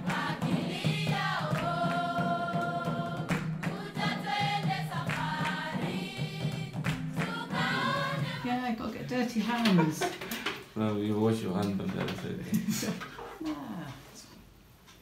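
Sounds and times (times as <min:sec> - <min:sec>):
choral singing: 0:00.0 - 0:08.8.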